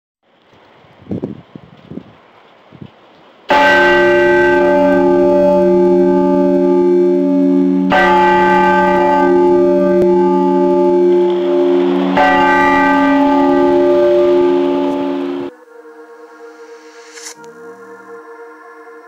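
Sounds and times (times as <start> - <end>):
faint wind: 0.2 - 19.0
large bell ringing: 3.5 - 15.5.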